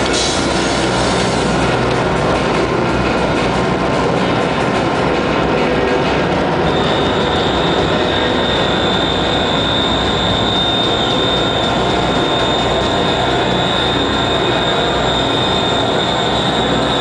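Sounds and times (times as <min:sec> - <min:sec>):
electric guitar feedback noise: 0:00.0 - 0:17.0
high whistling feedback tone: 0:06.5 - 0:17.0.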